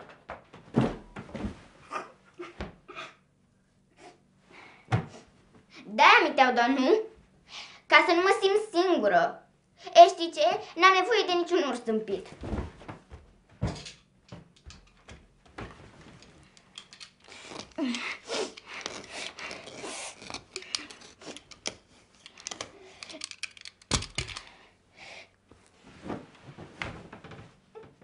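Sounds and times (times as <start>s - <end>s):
bedding rustling: 0.0s - 1.9s, 12.1s - 16.6s, 25.5s - 27.7s.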